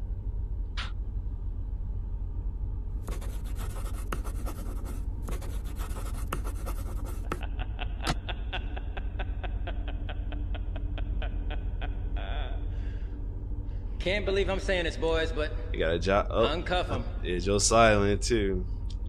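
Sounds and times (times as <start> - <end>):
steady low hum: 0.0 - 19.0
pen scratching on paper: 3.1 - 7.4.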